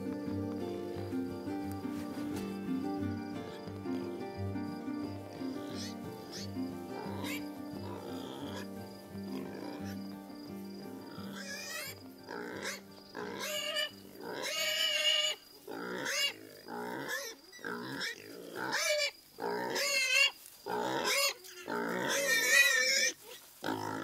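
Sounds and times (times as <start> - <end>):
pigs squealing: 5.6 - 8.7, 9.3 - 10.0, 11.1 - 24.0.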